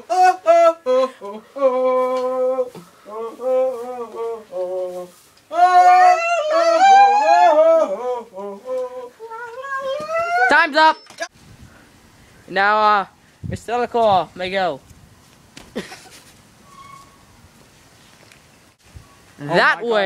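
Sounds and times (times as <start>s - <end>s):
young people singing: 5.5s - 10.5s.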